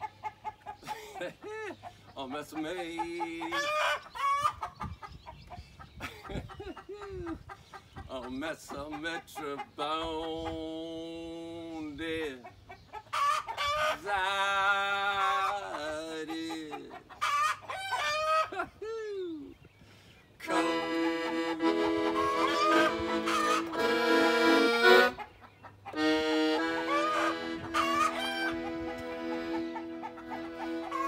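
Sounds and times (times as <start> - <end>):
chickens squawking: 0.0 - 31.0
accordion playing chords: 20.4 - 25.2, 25.9 - 31.0.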